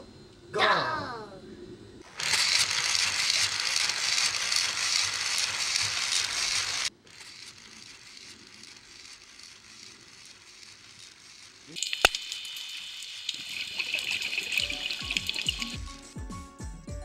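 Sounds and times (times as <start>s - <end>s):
faint crackling hiss: 5.8s - 15.9s.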